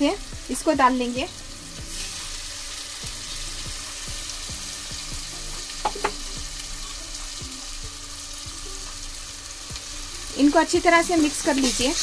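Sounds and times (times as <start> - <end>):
food sizzling in oil: 0.0 - 12.0
quick taps on pot: 5.8 - 6.2.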